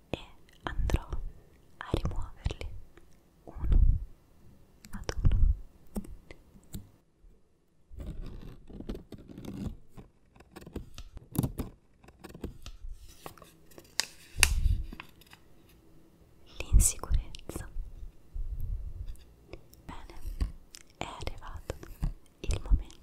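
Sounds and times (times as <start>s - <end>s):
paper crinkling: 13.0s - 15.5s.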